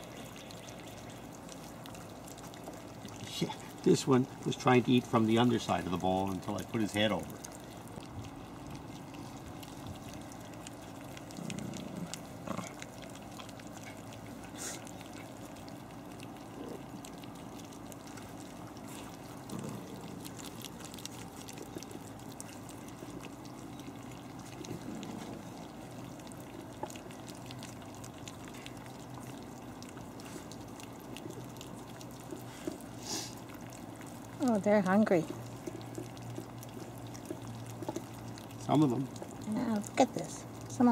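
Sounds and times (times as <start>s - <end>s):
puppies lapping and smacking: 0.0s - 40.9s.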